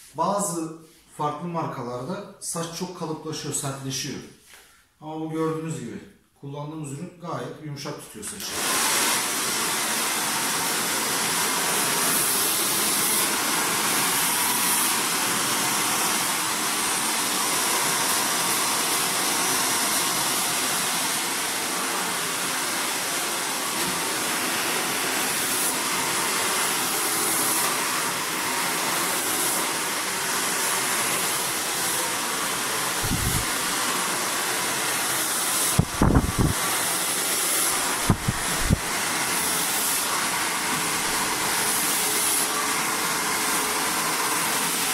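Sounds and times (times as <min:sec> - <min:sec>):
hair dryer running: 0:08.4 - 0:44.9
low thumps: 0:38.0 - 0:38.7.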